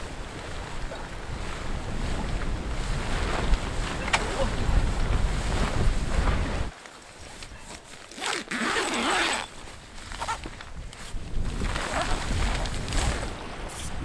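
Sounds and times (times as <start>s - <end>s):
wind rumbling on microphone: 0.0s - 6.7s, 9.3s - 14.0s
tent zipper rasping: 7.5s - 10.6s, 11.5s - 13.9s.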